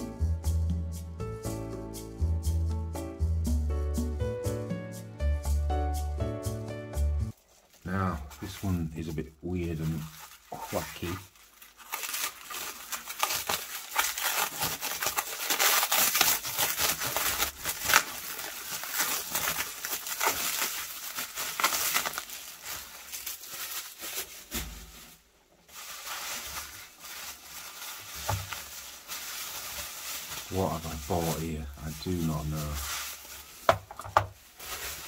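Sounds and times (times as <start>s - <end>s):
plastic film crinkling: 7.3s - 35.0s.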